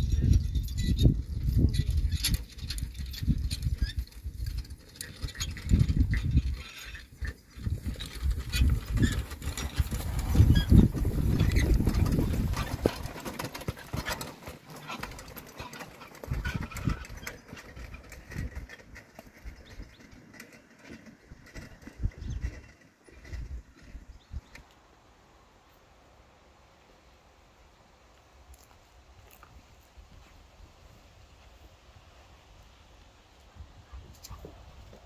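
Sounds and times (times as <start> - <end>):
carriage and harness rattling: 0.0 - 24.6
hoofbeats on grass and sand: 0.0 - 24.6.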